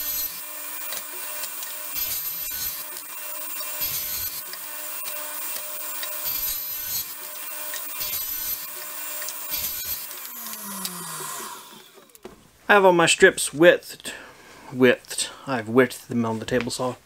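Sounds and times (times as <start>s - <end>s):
saw spinning down: 0.0s - 12.2s
table saw cutting: 0.0s - 12.2s.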